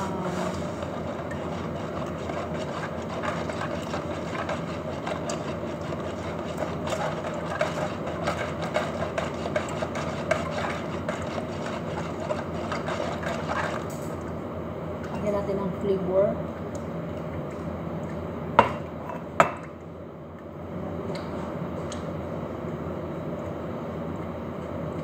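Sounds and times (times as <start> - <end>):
whisk beating mixture in bowl: 0.0 - 14.1.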